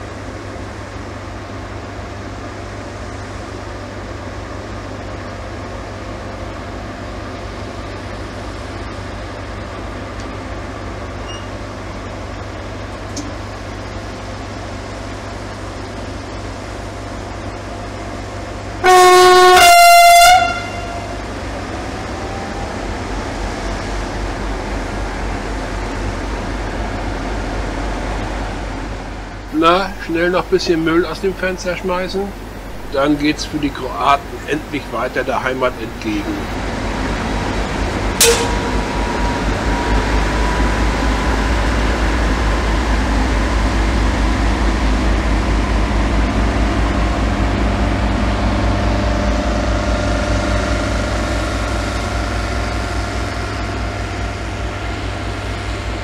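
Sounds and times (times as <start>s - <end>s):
diesel locomotive engine rumbling: 0.0s - 56.0s
locomotive horn blasts: 18.8s - 21.3s, 38.2s - 39.2s.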